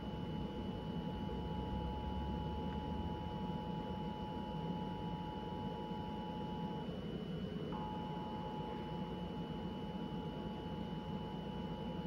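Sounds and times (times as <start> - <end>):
two-tone alarm signal: 7.7 - 12.0.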